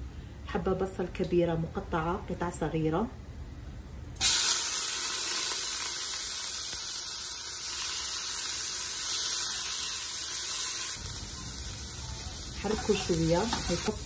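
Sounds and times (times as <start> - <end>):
onion sizzling in hot oil: 4.2 - 14.0.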